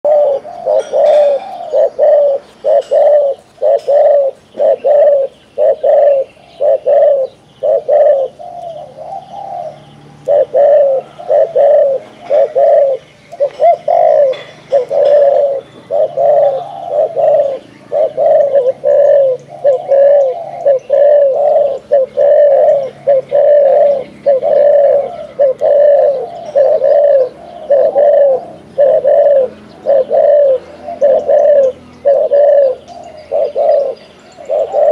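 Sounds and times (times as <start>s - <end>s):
dove cooing rapidly: 0.0s - 34.9s.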